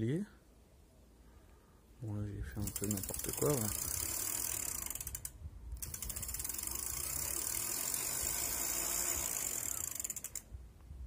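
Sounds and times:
bicycle freewheel ratcheting: 2.6s - 10.5s.

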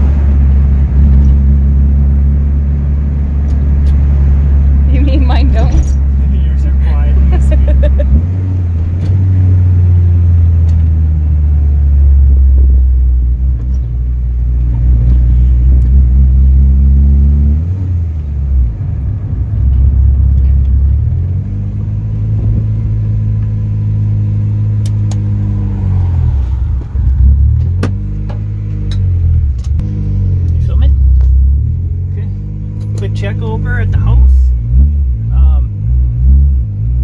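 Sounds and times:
car engine accelerating: 0.0s - 37.0s.

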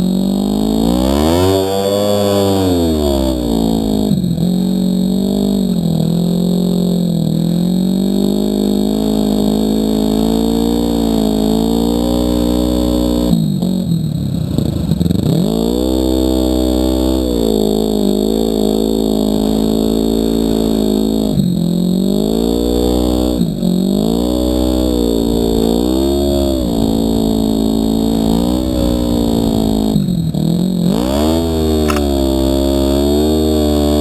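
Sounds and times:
snowmobile engine buzzing: 0.0s - 34.0s.

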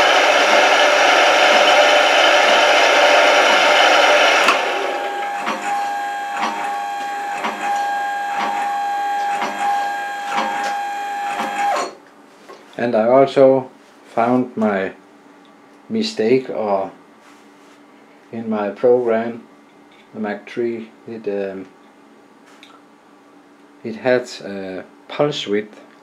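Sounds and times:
mill cutting steel: 0.0s - 12.0s
spindle whine: 0.0s - 12.0s.

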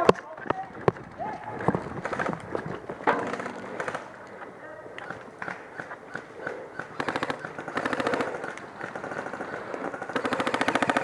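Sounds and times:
airsoft gun full-auto bursts: 5.1s - 11.0s.

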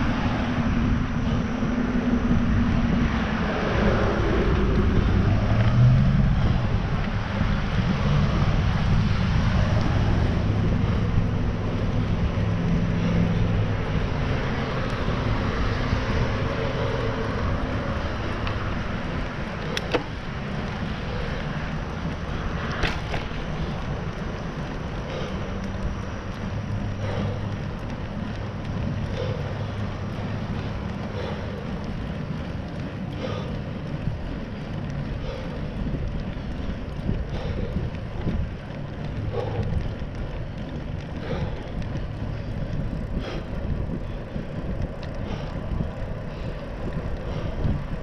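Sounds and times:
tyres rumbling on trail: 0.0s - 48.0s
wind noise on microphone: 0.0s - 48.0s.

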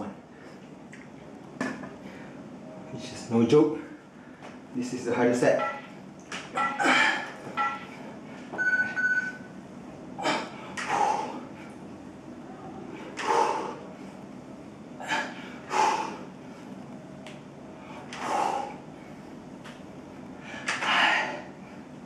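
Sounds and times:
man breathing hard: 10.2s - 11.8s, 13.2s - 14.3s, 15.0s - 16.8s, 17.7s - 19.4s, 20.4s - 22.0s.

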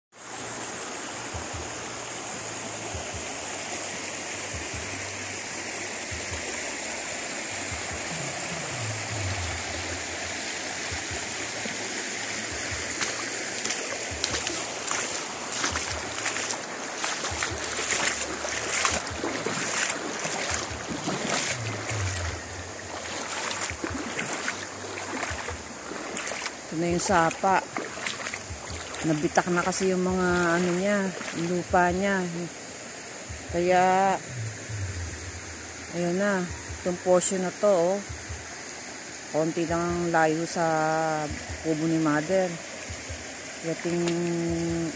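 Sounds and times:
stream flowing over stones: 0.2s - 44.9s
footsteps on gravel: 13.0s - 31.5s.

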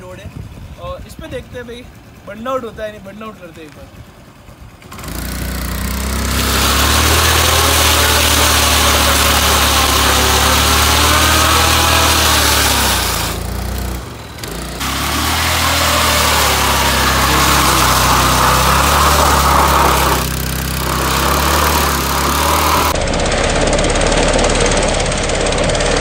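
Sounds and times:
scooter engine revving: 4.0s - 26.0s
tyre scrubbing on asphalt: 4.9s - 23.0s.

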